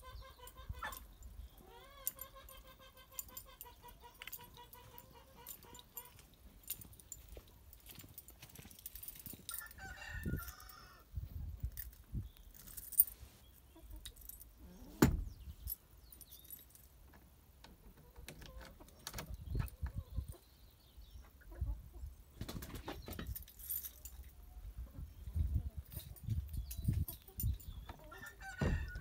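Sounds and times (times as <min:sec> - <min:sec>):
metal jingling: 0:00.4 - 0:09.8, 0:11.7 - 0:13.3, 0:15.3 - 0:17.0, 0:23.0 - 0:24.3, 0:25.8 - 0:27.9
door latch clicks: 0:15.0 - 0:15.3.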